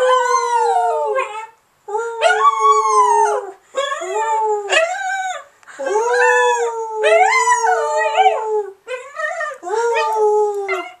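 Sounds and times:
dog and people howling: 0:00.0 - 0:11.0.

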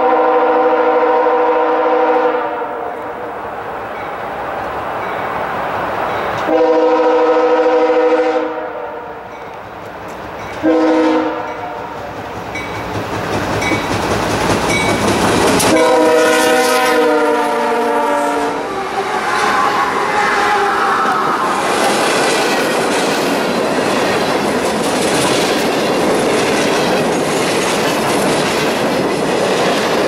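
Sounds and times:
locomotive air horn: 0:00.0 - 0:03.2, 0:06.5 - 0:09.3, 0:10.6 - 0:12.0, 0:15.6 - 0:21.5
freight cars rumbling and clattering: 0:21.1 - 0:30.0.

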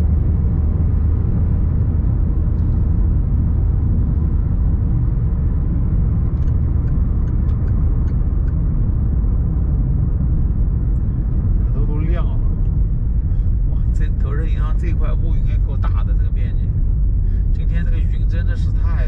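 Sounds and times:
van engine and tyre noise: 0:00.0 - 0:19.0
faint light ticks: 0:06.2 - 0:08.6.

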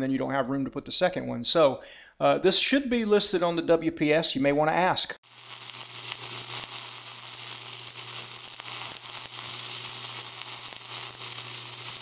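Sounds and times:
welding arc crackling: 0:05.2 - 0:12.0.

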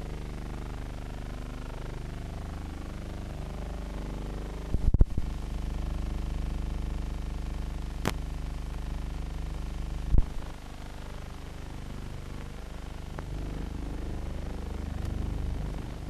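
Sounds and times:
loud pops and crackles: 0:08.0 - 0:08.3.

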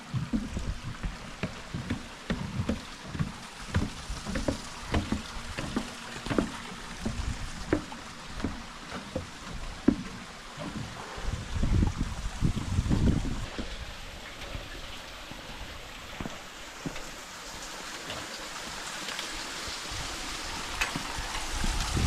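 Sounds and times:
footsteps on a trail: 0:00.0 - 0:14.0, 0:15.3 - 0:18.4.

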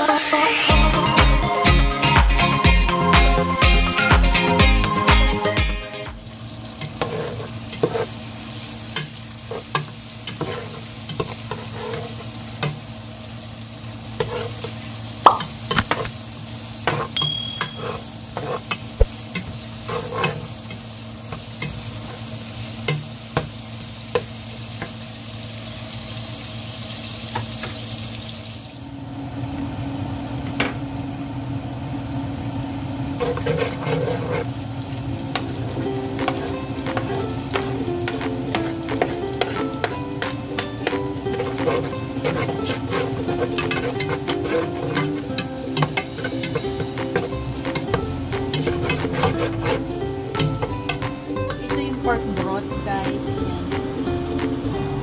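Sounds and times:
onions sizzling in oil: 0:03.9 - 0:55.0
metal utensil scraping pan: 0:06.8 - 0:08.2, 0:08.9 - 0:12.7, 0:14.2 - 0:14.8, 0:16.8 - 0:20.8, 0:33.2 - 0:34.5, 0:35.3 - 0:52.4.

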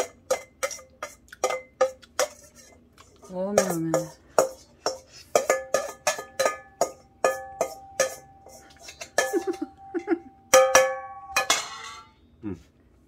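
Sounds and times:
metal spoon clinking in steel bowl: 0:00.0 - 0:12.1.

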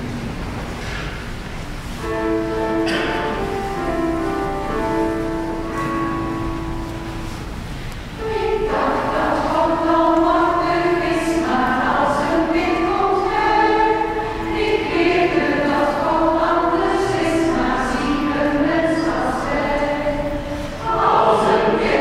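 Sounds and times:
held chord of steady tones: 0:01.9 - 0:22.0
group of voices singing: 0:08.2 - 0:22.0.

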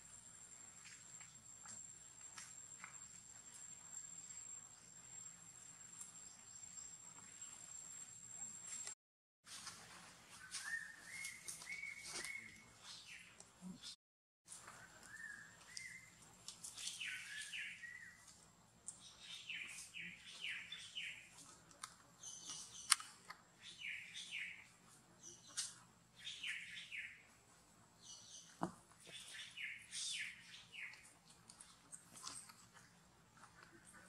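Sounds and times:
sharp click: 0:22.8 - 0:23.1.

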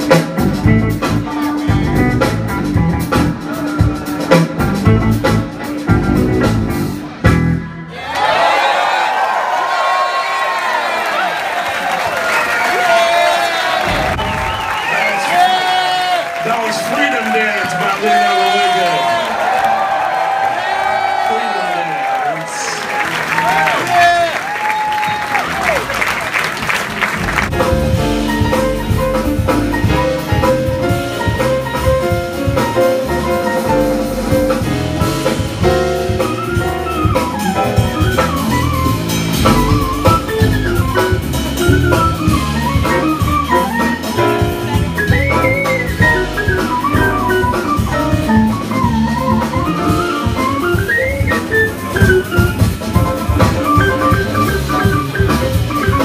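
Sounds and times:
live jazz band playing: 0:00.0 - 0:07.9, 0:22.6 - 0:56.0
applause: 0:08.1 - 0:27.5.

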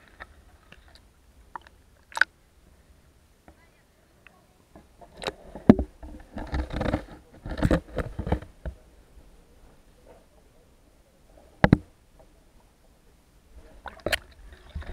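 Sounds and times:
water sloshing: 0:00.0 - 0:02.4, 0:13.6 - 0:14.9.

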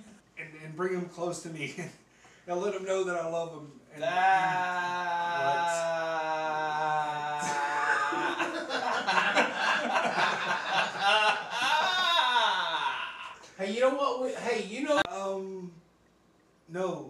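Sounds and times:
men laughing: 0:04.0 - 0:13.6.

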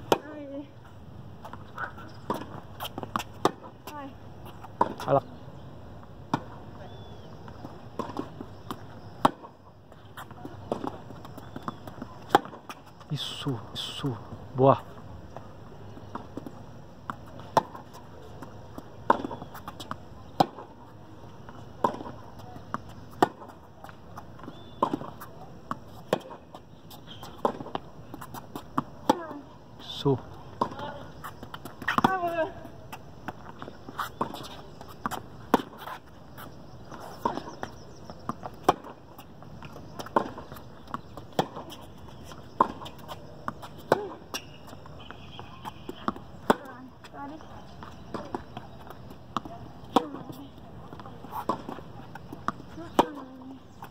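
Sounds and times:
tennis ball bouncing on court: 0:00.0 - 0:00.4, 0:01.4 - 0:05.2, 0:06.2 - 0:06.6, 0:07.4 - 0:09.5, 0:10.2 - 0:13.0, 0:15.3 - 0:20.8, 0:21.4 - 0:29.5, 0:30.5 - 0:53.9
tennis ball struck by racket: 0:02.2 - 0:03.8, 0:04.7 - 0:05.1, 0:08.0 - 0:08.3, 0:11.6 - 0:12.6, 0:17.1 - 0:18.0, 0:19.0 - 0:20.7, 0:21.8 - 0:23.6, 0:24.7 - 0:26.4, 0:27.3 - 0:29.3, 0:31.6 - 0:32.3, 0:34.0 - 0:36.0, 0:38.5 - 0:39.0, 0:40.0 - 0:44.6, 0:45.5 - 0:46.7, 0:51.0 - 0:53.3.

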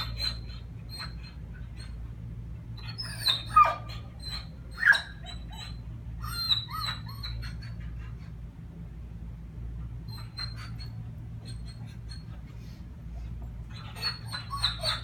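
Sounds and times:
dog whining and whimpering: 0:00.0 - 0:08.5, 0:09.7 - 0:15.0.

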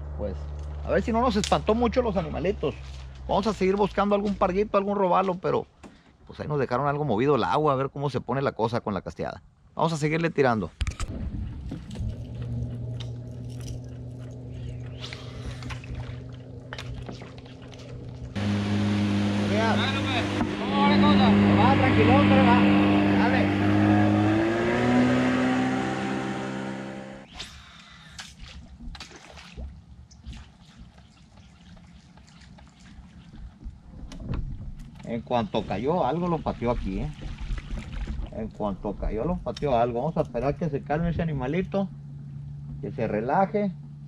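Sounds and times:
low rumble: 0:10.8 - 0:27.2
boat motor humming: 0:11.4 - 0:27.3, 0:39.4 - 0:44.0
water dripping and splashing: 0:15.1 - 0:18.4, 0:28.0 - 0:35.1, 0:36.1 - 0:38.6.

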